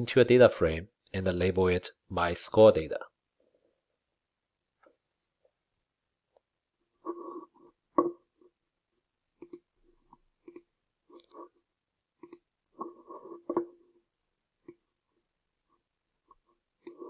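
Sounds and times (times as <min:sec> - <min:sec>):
computer mouse clicks: 0:09.4 - 0:09.7, 0:10.4 - 0:10.7, 0:12.2 - 0:12.5, 0:14.6 - 0:14.8, 0:16.8 - 0:17.0.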